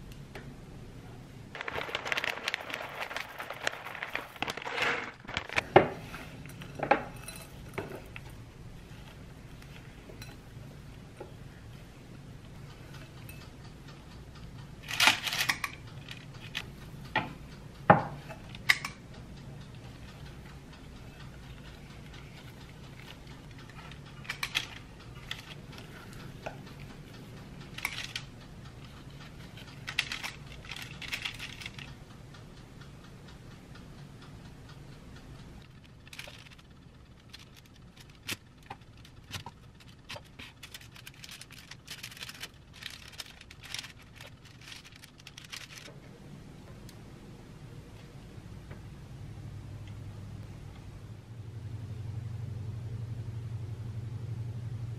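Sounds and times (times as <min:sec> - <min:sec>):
low hum: 0:15.6 - 0:54.9.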